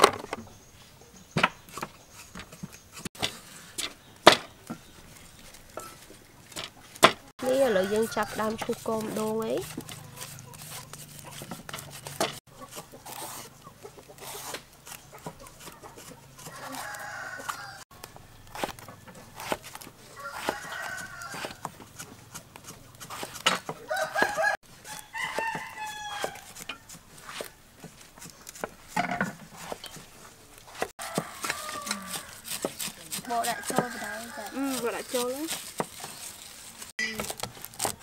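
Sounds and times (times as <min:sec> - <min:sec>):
roosters crowing: 0:07.4 - 0:13.6, 0:16.2 - 0:22.2, 0:23.0 - 0:27.7, 0:31.0 - 0:36.4.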